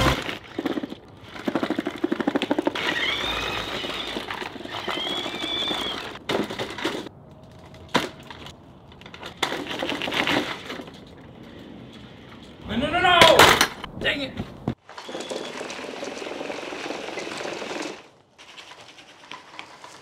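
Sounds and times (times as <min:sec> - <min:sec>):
tracks rattling: 0:00.0 - 0:20.0
electric motors whining: 0:02.8 - 0:06.2.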